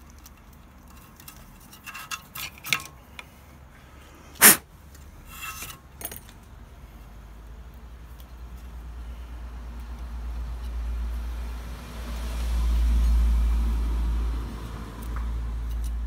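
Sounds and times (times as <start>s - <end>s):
cable rustling and scraping: 0.0s - 3.8s, 4.4s - 6.4s.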